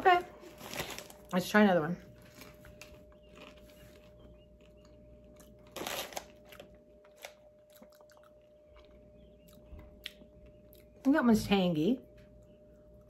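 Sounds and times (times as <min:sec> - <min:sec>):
person chewing popcorn: 0:02.2 - 0:11.0.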